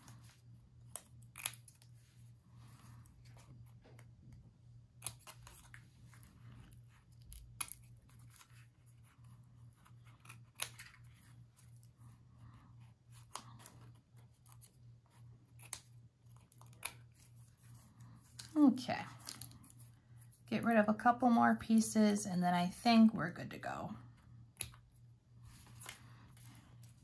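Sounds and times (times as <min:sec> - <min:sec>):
scissors snipping paper: 0:00.9 - 0:01.9, 0:04.9 - 0:06.3, 0:07.0 - 0:11.8, 0:13.1 - 0:17.3.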